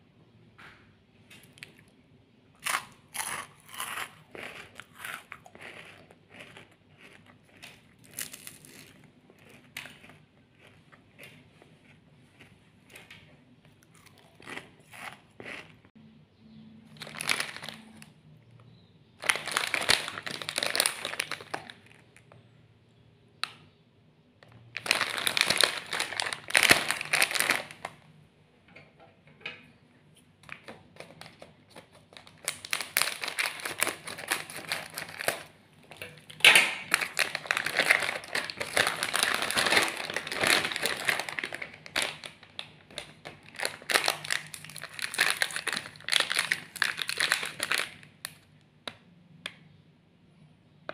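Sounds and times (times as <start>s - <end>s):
plastic wrappers crinkling: 16.9s - 18.1s, 19.2s - 22.3s, 24.5s - 28.0s, 30.4s - 48.4s.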